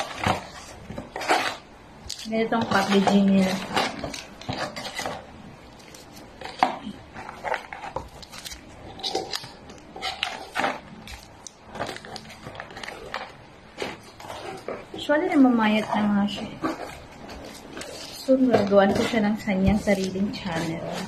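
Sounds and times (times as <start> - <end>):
food pouches crinkling and tapping: 0.0 - 15.1.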